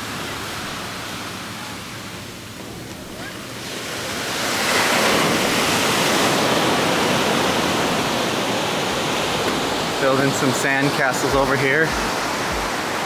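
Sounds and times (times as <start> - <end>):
surf washing: 0.0 - 13.0
wave breaking: 0.0 - 13.0.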